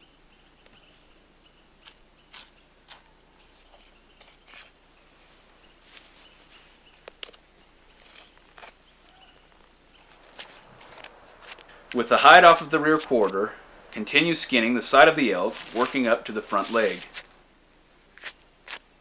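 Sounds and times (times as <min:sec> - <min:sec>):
knife scraping and slicing hide: 0:01.8 - 0:04.8, 0:07.2 - 0:08.8, 0:15.3 - 0:17.3, 0:18.2 - 0:18.8.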